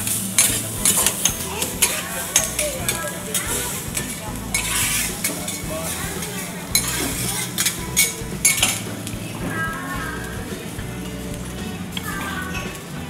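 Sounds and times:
rice sizzling on griddle: 0:00.0 - 0:13.0
metal spatulas scraping and clattering: 0:00.1 - 0:09.6.

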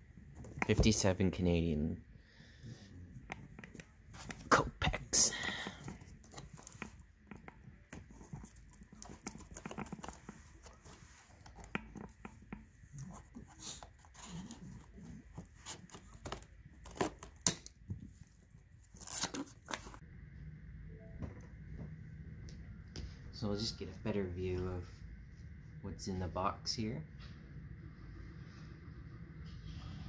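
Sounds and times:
scissors scraping tape and cardboard: 0:13.0 - 0:17.7
tape tearing: 0:13.6 - 0:17.7, 0:18.8 - 0:20.0.

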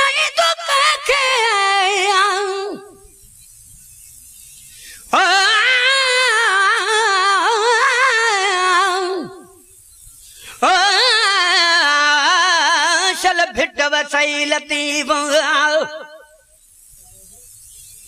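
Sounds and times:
solo voice singing: 0:00.0 - 0:03.1, 0:05.1 - 0:09.6, 0:10.6 - 0:16.4.

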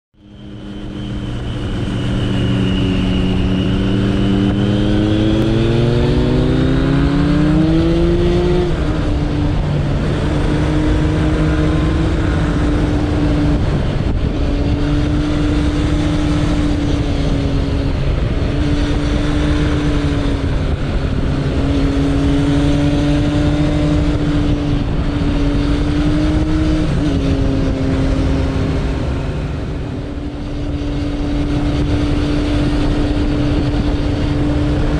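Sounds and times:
motorcycle engine under way: 0:00.2 - 0:34.9
wind noise: 0:00.2 - 0:34.9.

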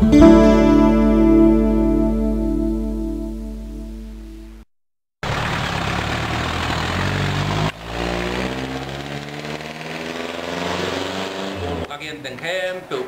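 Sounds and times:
vehicle engine running: 0:05.2 - 0:10.6.

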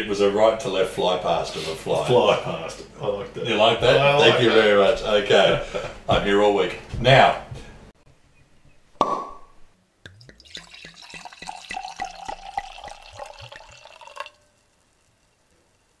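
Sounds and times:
glass clink: 0:10.1 - 0:14.6
liquid pouring into a glass: 0:10.1 - 0:15.5.

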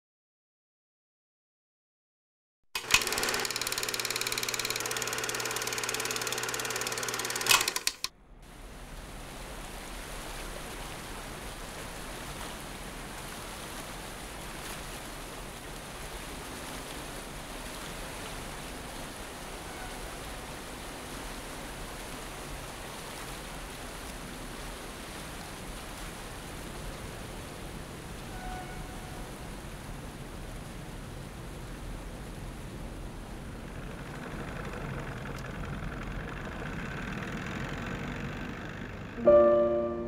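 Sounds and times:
wind: 0:07.4 - 0:40.0
logo sting sustained tones: 0:39.2 - 0:40.0.

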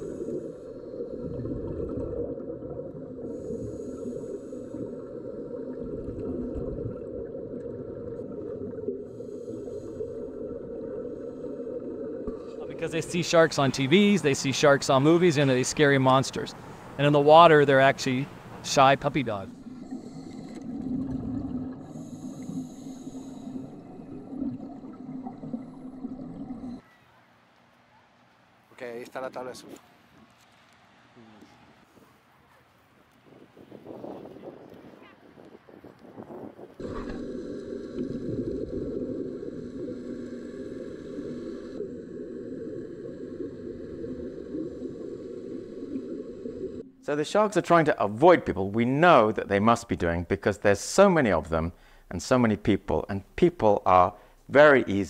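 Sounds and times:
breath hissing through regulator: 0:00.0 - 0:01.2, 0:03.2 - 0:05.1, 0:08.9 - 0:12.7, 0:21.7 - 0:24.2
exhaled bubbles gurgling underwater: 0:00.0 - 0:13.1, 0:19.5 - 0:26.8, 0:36.7 - 0:47.0
faint steady tones: 0:36.8 - 0:48.8.

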